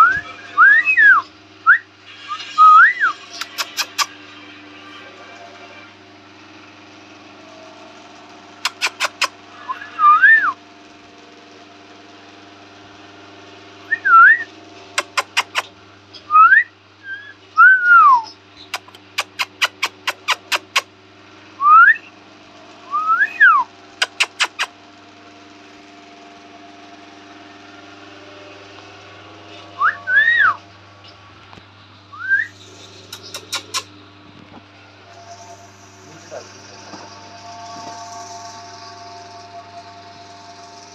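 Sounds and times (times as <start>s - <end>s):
whistled sliding notes: 0.0s - 3.2s
low hum: 26.8s - 40.9s.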